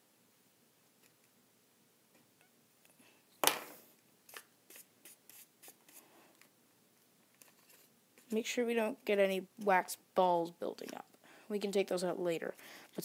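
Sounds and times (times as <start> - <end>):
brush strokes on stiff paper: 4.3 - 6.2.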